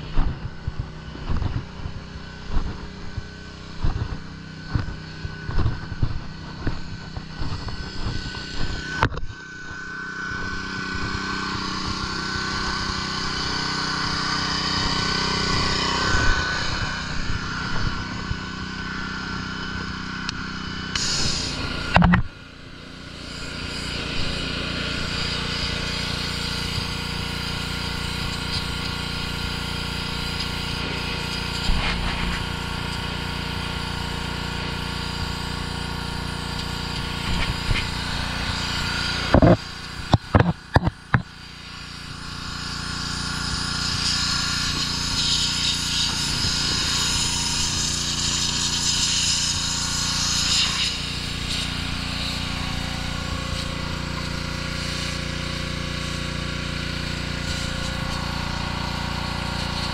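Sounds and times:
pressure washer engine running: 0.0s - 59.9s
water jet spraying hiss: 21.0s - 21.9s, 23.1s - 40.1s, 41.6s - 56.2s.

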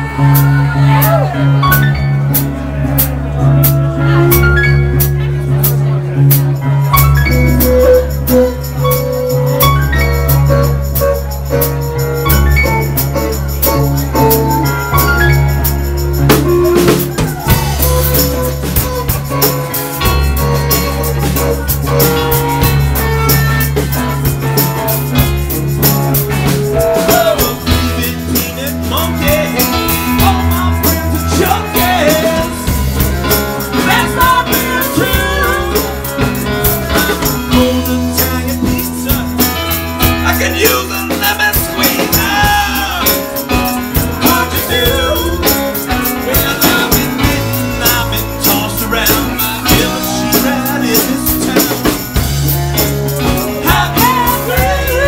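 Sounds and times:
drum kit with cymbals: 0.0s - 55.0s
electric bass: 0.0s - 55.0s
electric guitar: 0.0s - 55.0s
person singing: 25.8s - 55.0s.

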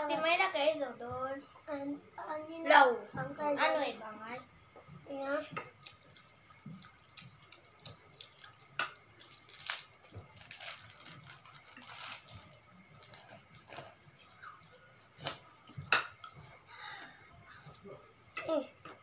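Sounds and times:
noodles being slurped and chewed: 5.8s - 14.6s.

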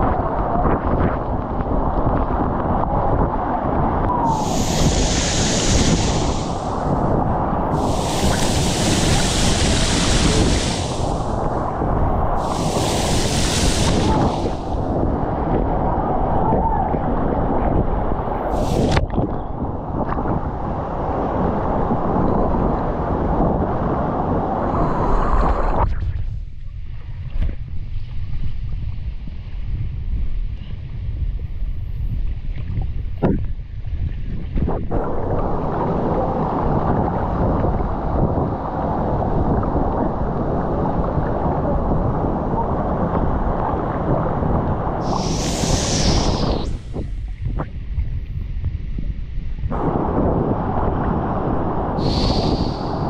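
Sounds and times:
wind buffeting microphone: 0.0s - 53.0s
low rumble: 4.0s - 20.5s, 44.5s - 53.0s
waterfall roaring: 4.2s - 6.8s, 7.7s - 11.4s, 12.4s - 14.8s.

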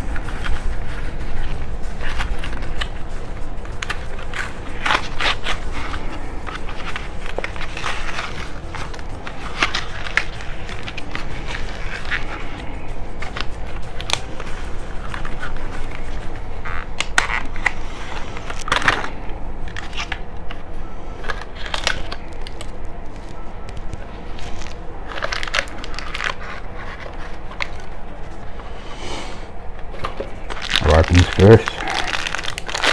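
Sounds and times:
plastic packaging crinkling: 0.0s - 28.5s, 29.8s - 32.9s.

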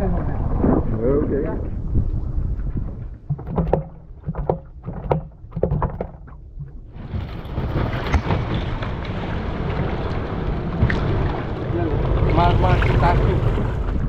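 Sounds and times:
wind on microphone: 0.0s - 14.0s
water splashing against boat hull: 2.7s - 14.0s.

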